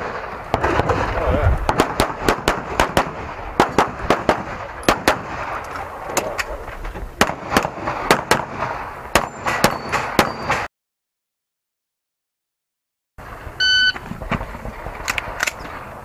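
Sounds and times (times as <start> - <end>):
pistol shots: 1.7 - 5.6, 7.2 - 10.7.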